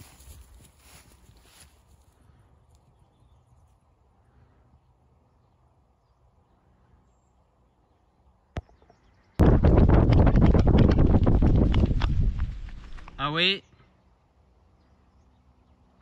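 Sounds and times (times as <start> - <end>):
low rumble: 9.4 - 13.2
wind noise on microphone: 9.4 - 13.2.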